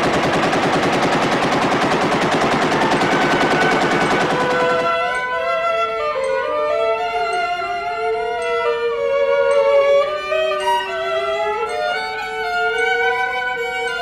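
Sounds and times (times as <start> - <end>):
machine-gun fire: 0.0 - 5.2
bowed strings holding notes: 1.3 - 14.0.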